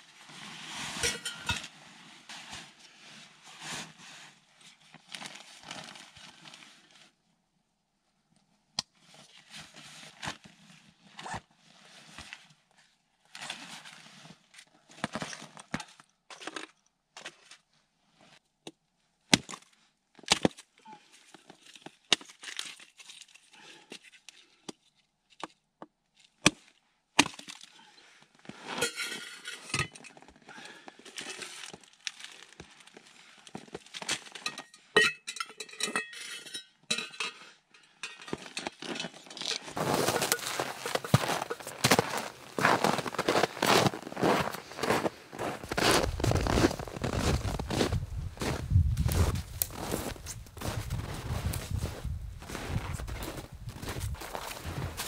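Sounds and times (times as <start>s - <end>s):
metal cup clinking: 1.0s - 1.6s, 39.9s - 41.8s
clothing rustling: 39.8s - 51.0s
snow crunching: 39.8s - 55.0s.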